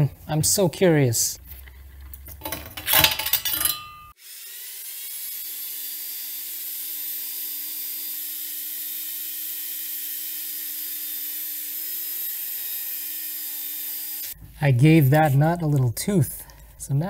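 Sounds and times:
bandsaw cutting metal nut: 0:02.3 - 0:14.4
bandsaw running: 0:04.1 - 0:14.4.

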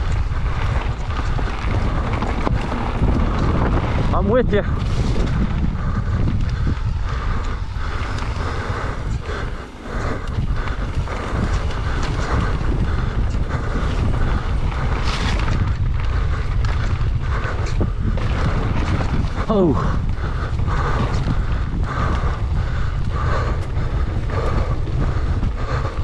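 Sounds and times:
bike knocks and rattles: 0:00.0 - 0:06.9
bike tyre noise: 0:00.0 - 0:26.0
wind buffeting microphone: 0:00.0 - 0:26.0.

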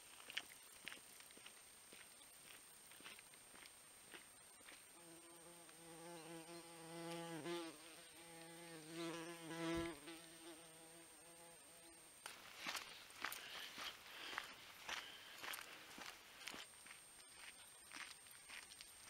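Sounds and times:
insect buzzing: 0:04.6 - 0:13.2.

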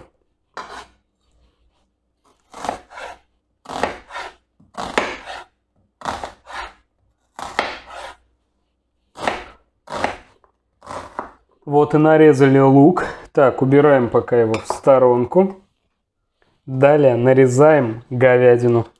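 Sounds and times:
knife cutting onion on wooden board: 0:00.0 - 0:08.3, 0:09.0 - 0:11.5.

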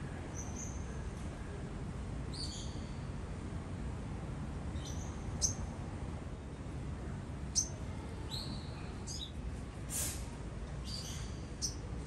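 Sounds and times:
bird chirping: 0:07.5 - 0:09.4, 0:10.8 - 0:11.8
brief hiss: 0:09.9 - 0:10.4.

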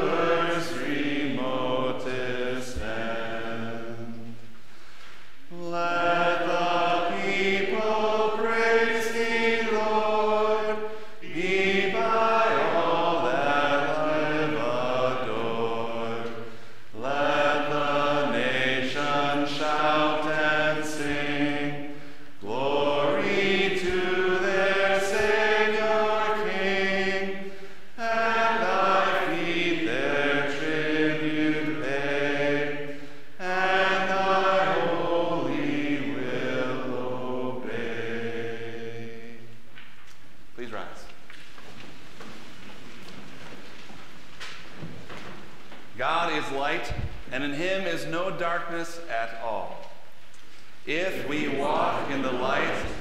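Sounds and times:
congregation singing a hymn: 0:00.0 - 0:40.0, 0:50.8 - 0:53.0.

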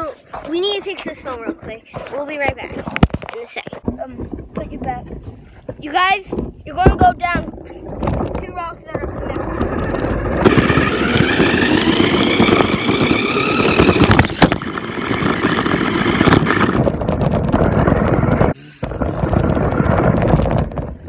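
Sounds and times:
tyres rattling on rock: 0:00.0 - 0:21.0
toy car electric motor whining: 0:09.4 - 0:16.8.

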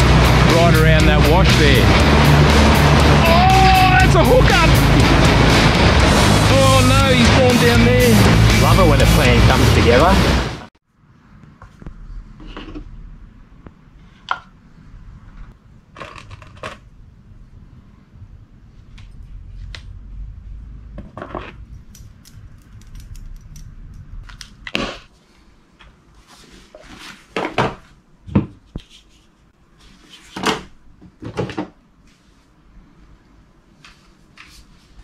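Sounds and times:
low background rumble: 0:00.0 - 0:25.1.

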